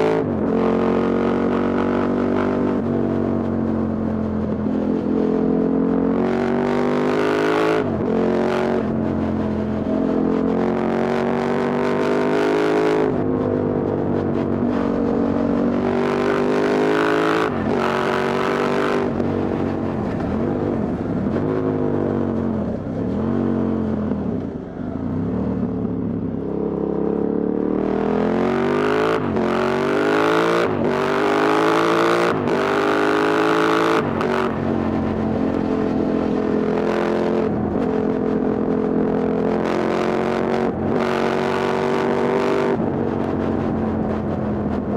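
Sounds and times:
motorcycle engine and exhaust: 0:00.0 - 0:44.9.

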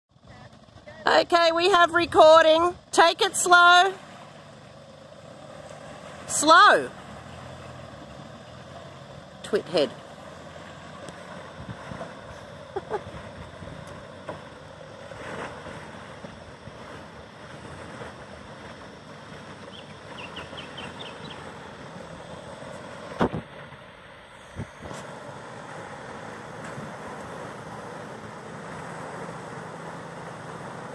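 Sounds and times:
vehicle engine: 0:00.1 - 0:30.9
water wash: 0:09.4 - 0:30.9
wind on microphone: 0:11.5 - 0:14.0.

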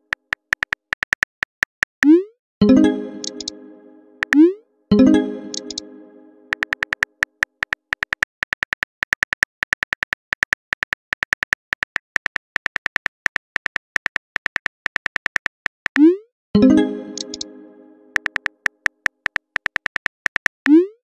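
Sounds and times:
phone keyboard clicks: 0:00.1 - 0:02.0, 0:05.5 - 0:05.8, 0:06.5 - 0:16.0, 0:17.2 - 0:17.5, 0:18.2 - 0:20.7
chord of tones: 0:02.6 - 0:06.7, 0:16.6 - 0:18.4.

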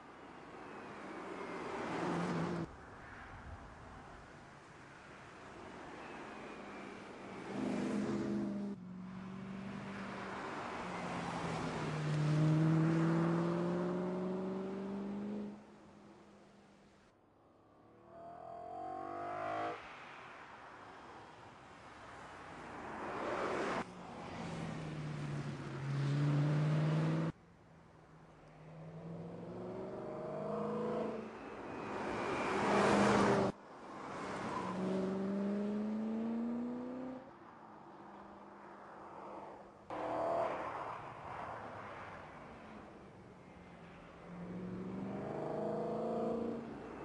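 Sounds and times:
car engine passing: 0:07.4 - 0:15.8, 0:18.0 - 0:21.0, 0:22.9 - 0:27.4, 0:28.5 - 0:33.5, 0:34.1 - 0:37.3, 0:43.6 - 0:47.0
car accelerating: 0:10.9 - 0:15.8, 0:24.9 - 0:27.4, 0:28.6 - 0:31.4, 0:34.6 - 0:37.3, 0:44.4 - 0:47.0
car engine accelerating: 0:12.0 - 0:15.6, 0:26.0 - 0:27.3, 0:34.8 - 0:37.2.

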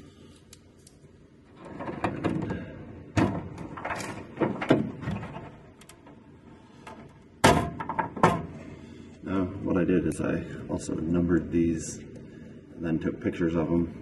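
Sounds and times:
plastic connectors rustling and scraping: 0:00.3 - 0:02.6, 0:03.4 - 0:06.2.

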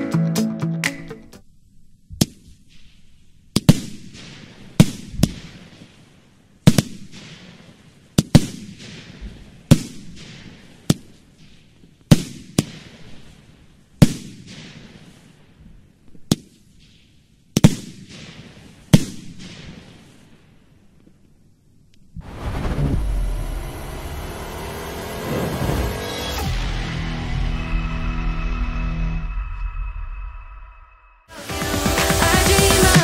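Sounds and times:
fireworks launching and bursting: 0:02.1 - 0:20.6, 0:22.2 - 0:26.7, 0:31.3 - 0:33.0
fireworks hiss: 0:31.3 - 0:33.0.

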